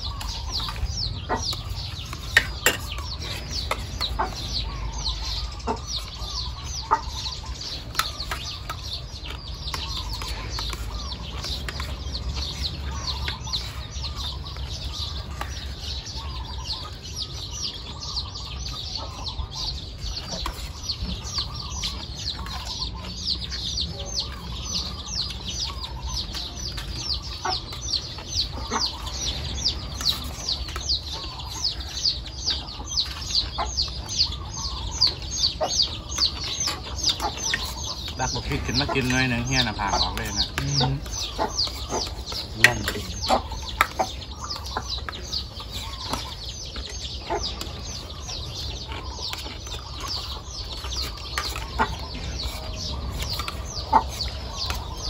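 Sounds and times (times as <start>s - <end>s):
birds chirping: 0.0s - 55.0s
chickens clucking: 0.0s - 55.0s
metal spoons clinking on plates: 2.3s - 3.8s.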